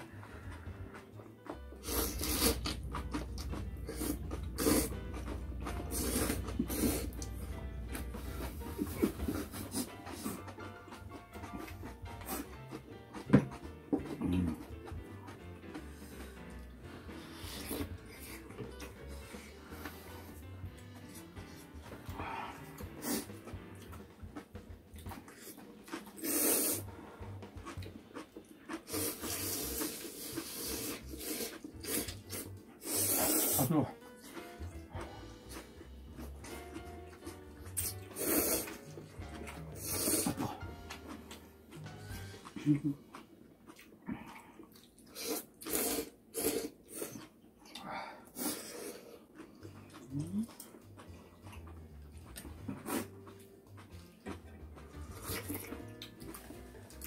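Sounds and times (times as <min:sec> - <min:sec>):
chewing: 0:00.0 - 0:57.0
people slurping noodles: 0:01.8 - 0:10.5, 0:22.0 - 0:23.6, 0:25.9 - 0:27.7, 0:28.7 - 0:33.9, 0:37.3 - 0:43.0, 0:44.0 - 0:47.3, 0:47.9 - 0:50.6
breathing: 0:22.1 - 0:22.8, 0:47.8 - 0:49.3.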